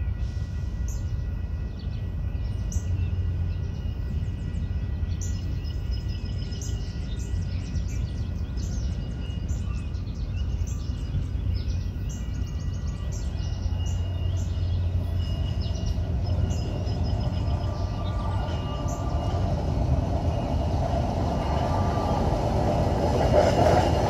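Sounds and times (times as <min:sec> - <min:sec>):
approaching train rumble: 0:00.0 - 0:24.0
birds chirping: 0:00.9 - 0:24.0
low outdoor rumble: 0:12.6 - 0:24.0.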